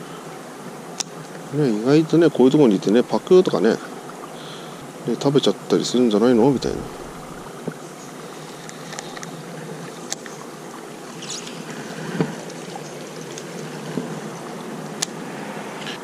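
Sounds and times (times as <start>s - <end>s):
flowing water rushing: 0.0s - 16.0s
light clicks and rustles: 8.4s - 10.4s.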